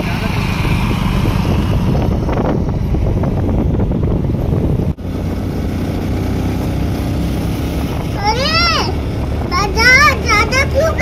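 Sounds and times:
motorcycle engine hum: 0.0 - 11.0
wind buffeting microphone: 0.0 - 11.0.

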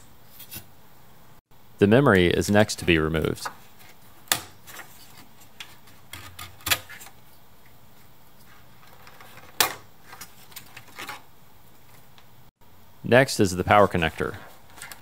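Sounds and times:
handling rustles: 13.9 - 15.0.

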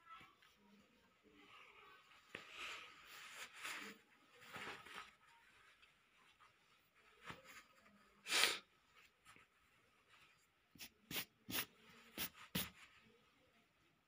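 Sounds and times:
pencil scratching on paper: 10.8 - 12.8.

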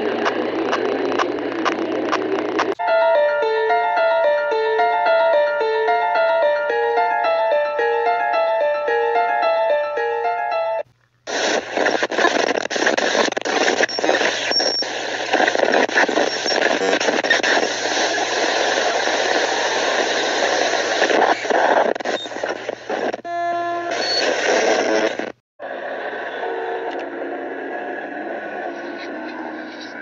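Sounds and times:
radio static crackling: 0.0 - 2.8, 10.9 - 23.3, 23.9 - 26.2
brief electronic tone: 23.3 - 25.1.

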